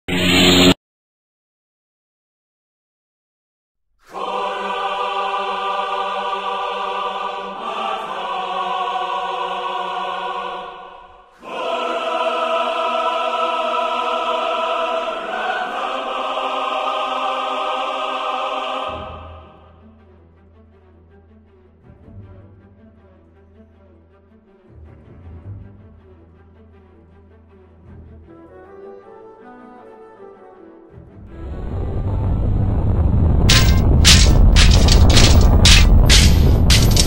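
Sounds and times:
choir singing held chords: 4.0s - 19.8s.

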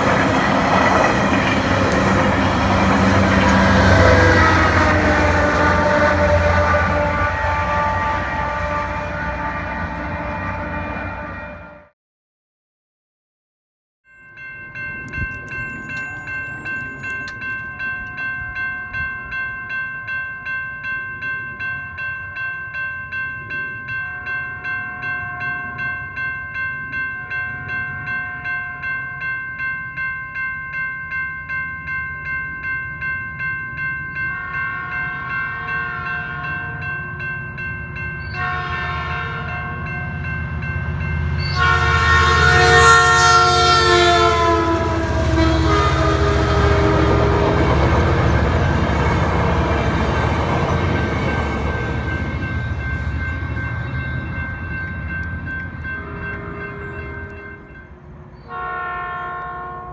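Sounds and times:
crossing warning bell ringing: 0.0s - 11.8s, 14.1s - 59.9s
train rumbling: 0.0s - 11.8s, 14.4s - 19.8s, 31.5s - 59.9s
train horn blasts: 1.9s - 11.9s, 34.4s - 36.8s, 38.3s - 40.3s, 41.3s - 49.6s, 55.9s - 57.8s, 58.4s - 59.9s.

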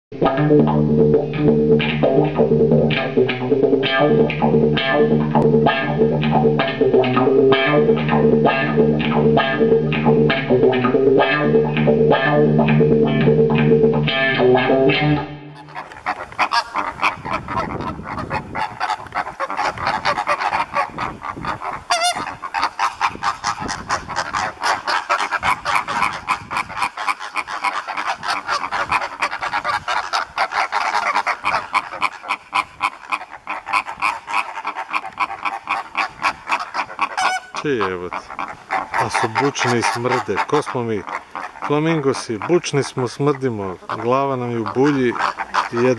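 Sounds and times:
plucked string instrumental music: 0.2s - 15.9s
flamingos honking and chattering: 0.2s - 45.9s.

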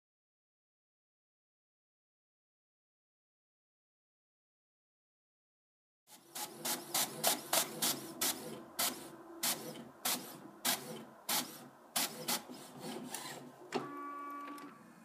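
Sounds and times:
paper feed hum: 6.1s - 14.8s
printer head shuttling: 6.3s - 14.8s.

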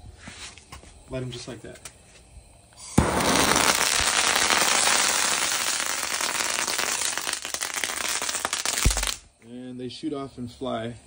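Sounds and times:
fuse hissing: 2.7s - 9.4s
pyrotechnics crackling and popping: 2.8s - 9.4s.

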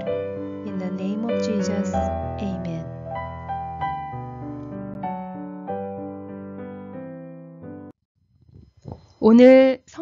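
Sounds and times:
slow piano keyboard music: 0.0s - 8.0s.

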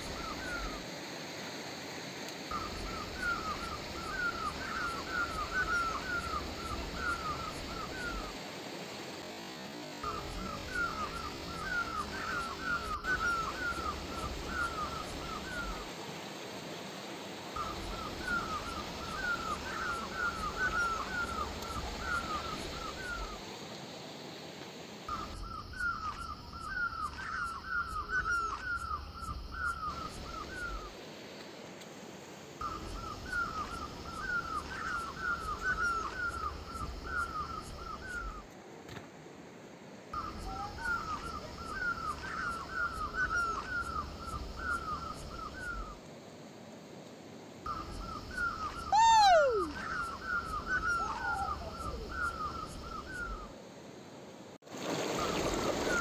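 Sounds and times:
animal chirping calls: 48.4s - 53.4s.

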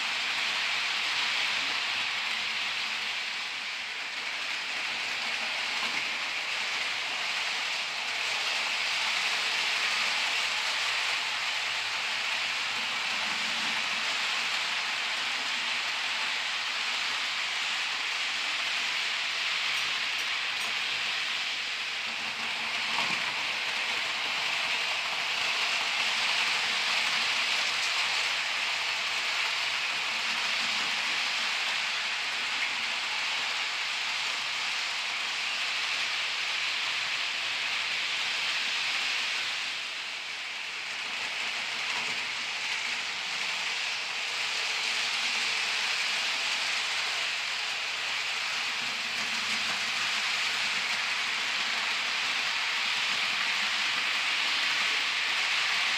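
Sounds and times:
model locomotive motors: 0.0s - 55.9s
model train wheels on rails: 0.0s - 55.9s.

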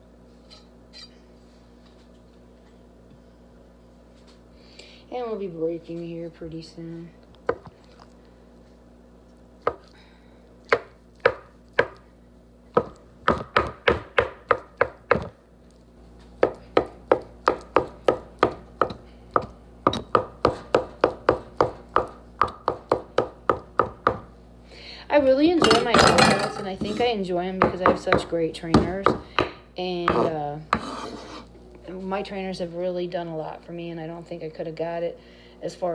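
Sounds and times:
knife chopping on wooden board: 9.6s - 9.9s, 10.7s - 12.0s, 12.7s - 15.4s, 16.4s - 24.3s, 27.6s - 31.4s.

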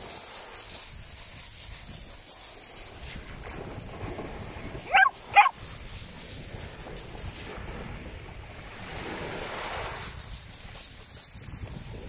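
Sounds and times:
wind rumbling on microphone: 0.0s - 12.0s
small waves washing in: 2.8s - 10.8s.

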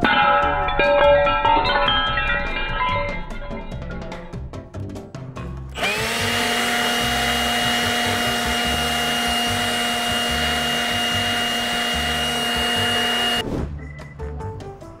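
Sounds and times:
leaf blower motor whining: 5.7s - 13.4s.

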